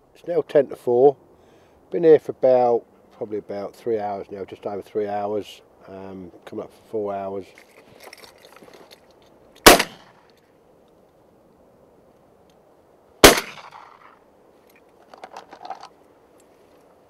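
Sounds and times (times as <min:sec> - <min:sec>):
shotgun shots: 0:09.6 - 0:10.2, 0:13.2 - 0:14.2.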